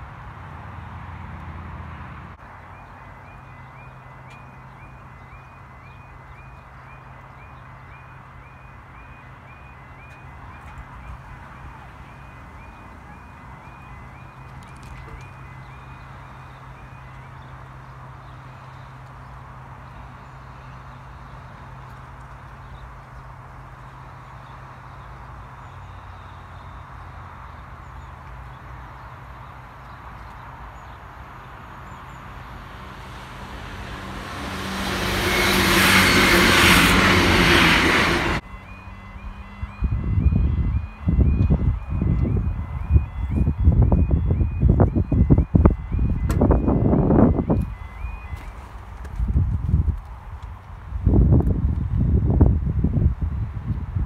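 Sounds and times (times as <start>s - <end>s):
distant diesel train rumble: 0.0s - 54.0s
level crossing alarm yelping: 2.9s - 17.4s, 32.8s - 48.6s.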